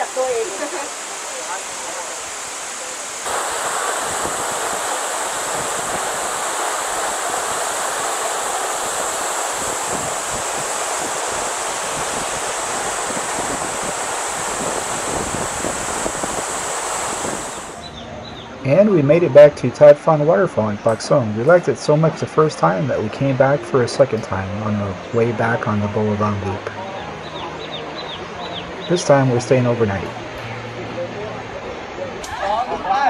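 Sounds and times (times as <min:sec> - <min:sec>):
waterfall rushing: 0:00.0 - 0:17.9.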